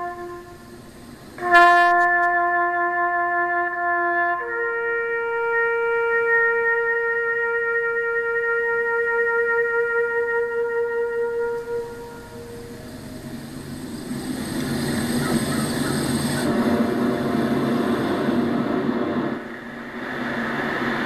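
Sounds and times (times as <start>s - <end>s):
bugle note: 0.0s - 19.5s
stadium crowd roaring: 12.4s - 21.0s.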